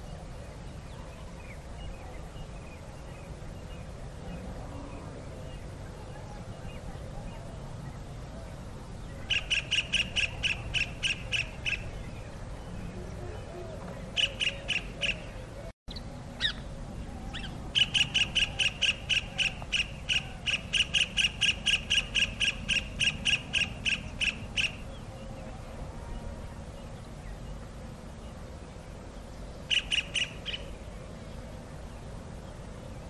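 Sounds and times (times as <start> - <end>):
kingfisher calling: 9.3 - 12.1, 14.2 - 16.6, 17.3 - 24.8, 29.7 - 30.7.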